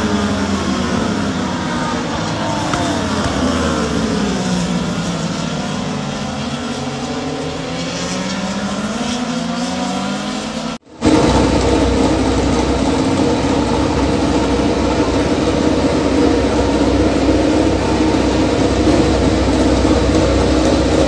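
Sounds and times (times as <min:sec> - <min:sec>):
motorcycle engine idling: 0:00.0 - 0:05.8.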